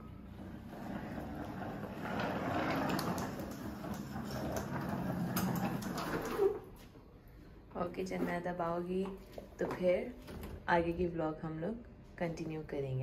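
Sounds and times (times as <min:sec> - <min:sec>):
bag wheels rumbling on tiles: 0:00.2 - 0:06.6.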